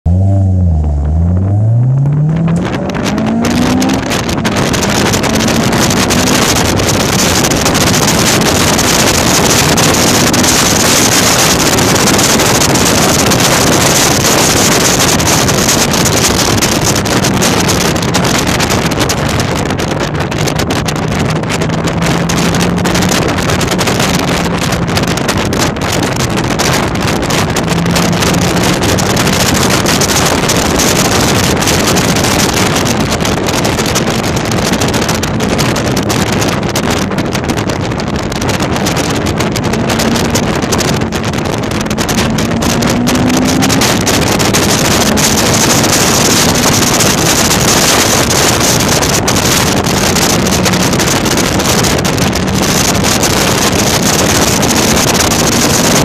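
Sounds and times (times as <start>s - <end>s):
wind and road noise: 0.0s - 56.0s
car engine gear change: 0.1s - 56.0s.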